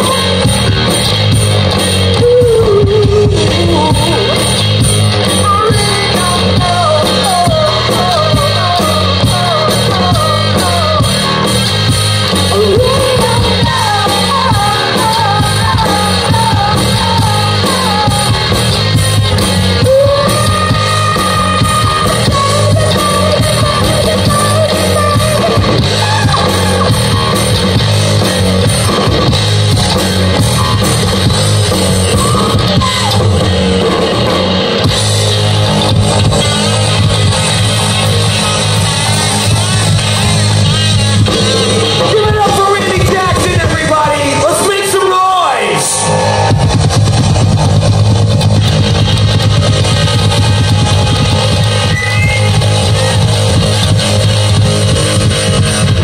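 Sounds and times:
bass guitar: 0:00.0 - 0:56.0
drum kit beat: 0:00.0 - 0:56.0
electric guitars: 0:00.0 - 0:56.0
person singing: 0:02.1 - 0:04.5, 0:05.4 - 0:11.6, 0:12.4 - 0:18.6, 0:19.8 - 0:27.4.

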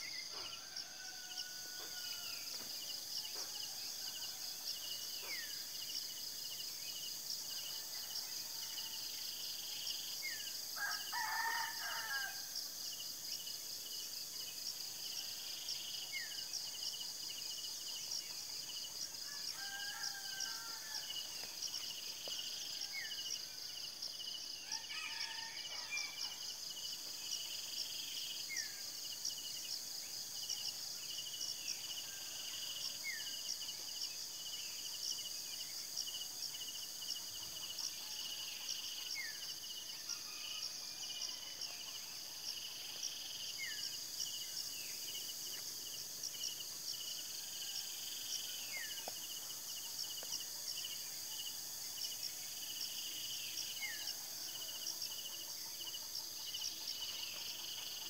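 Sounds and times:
rooster crowing: 0:00.4 - 0:02.6, 0:10.8 - 0:12.5, 0:19.2 - 0:21.3, 0:24.6 - 0:26.3
insects chirring: 0:09.2 - 0:58.0.

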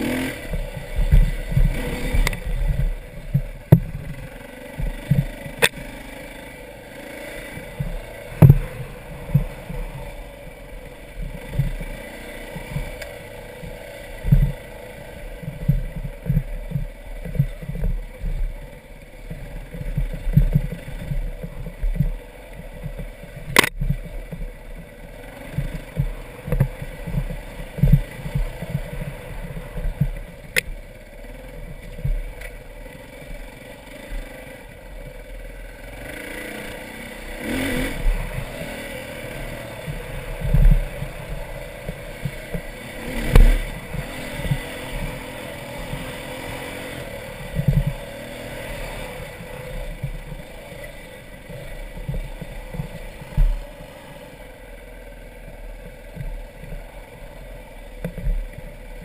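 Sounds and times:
dirt bike engine running: 0:00.0 - 0:59.0
sharp clicks: 0:00.3 - 0:05.9, 0:19.3 - 0:24.4, 0:25.5 - 0:30.8
short low thumps: 0:00.4 - 0:05.7, 0:07.5 - 0:13.0, 0:13.6 - 0:24.9, 0:25.5 - 0:31.0, 0:31.6 - 0:32.7, 0:37.9 - 0:54.0.

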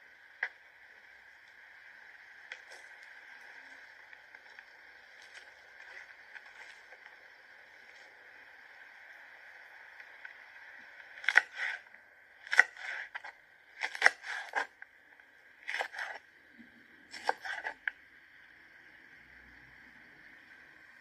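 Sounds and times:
faint steady hiss: 0:00.0 - 0:21.0
knife chopping on wooden board: 0:15.7 - 0:16.2, 0:17.1 - 0:17.7.

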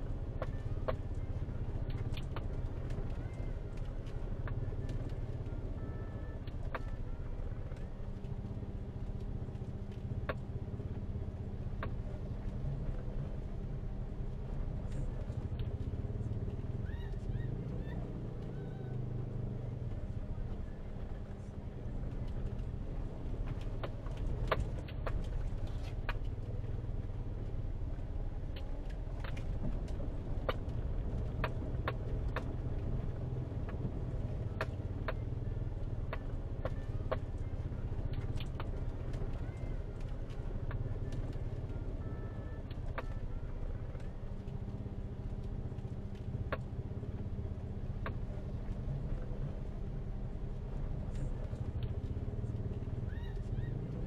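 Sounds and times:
car engine and tyre rumble: 0:00.0 - 0:54.0.

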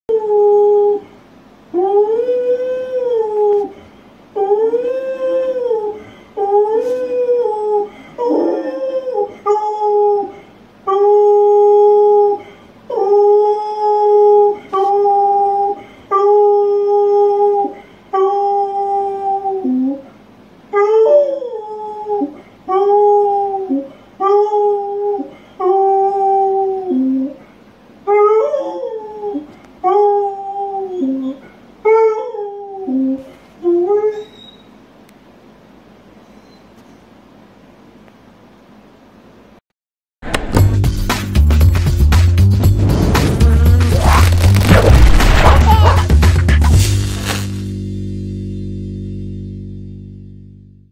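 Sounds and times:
dog howling: 0:04.4 - 0:20.0.

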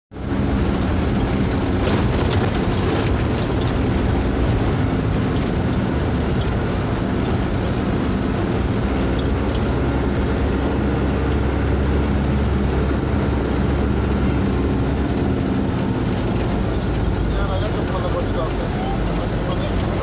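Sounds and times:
tyres rumbling on dirt road: 0:00.1 - 0:20.0
vehicle engine running: 0:00.1 - 0:20.0
light rattles: 0:00.6 - 0:10.7.

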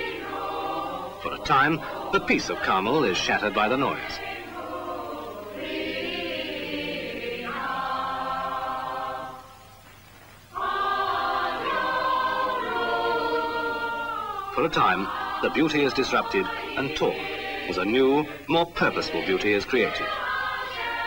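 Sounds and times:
choir singing held chords: 0:00.0 - 0:09.9, 0:10.5 - 0:21.0.

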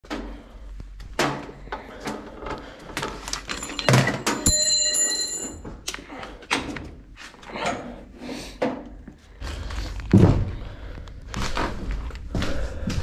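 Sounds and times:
short high ringing tone: 0:04.4 - 0:05.6.

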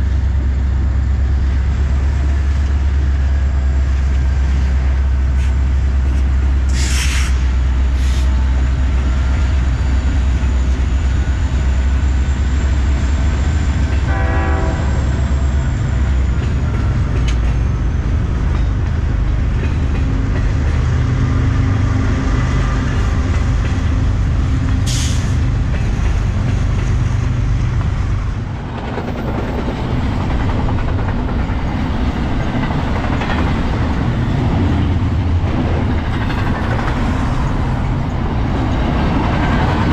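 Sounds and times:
diesel locomotive engines rumbling: 0:00.0 - 0:39.9
freight cars rolling by: 0:00.0 - 0:39.9
train horn: 0:13.9 - 0:15.6.

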